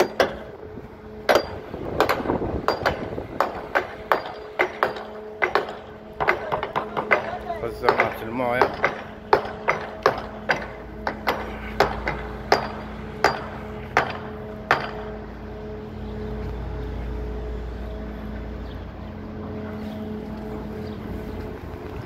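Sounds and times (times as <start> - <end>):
hammer strikes: 0.0 - 0.5, 1.2 - 15.4
low machine hum: 0.0 - 22.0.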